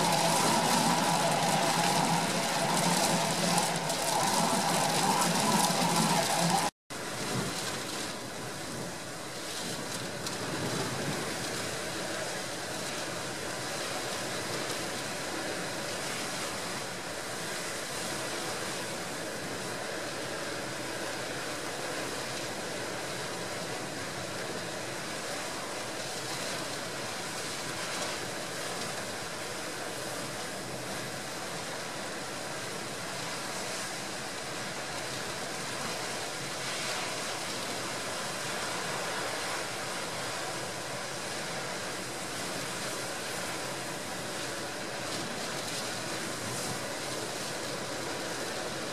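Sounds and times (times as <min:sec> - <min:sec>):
storm surf: 0:00.0 - 0:07.6.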